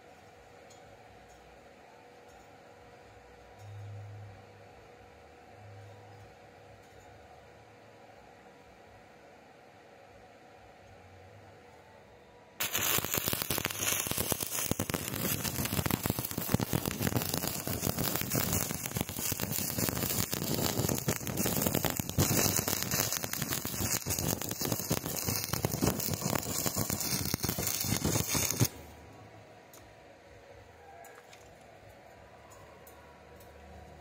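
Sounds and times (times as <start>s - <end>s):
welding arc crackling: 12.6s - 29.0s.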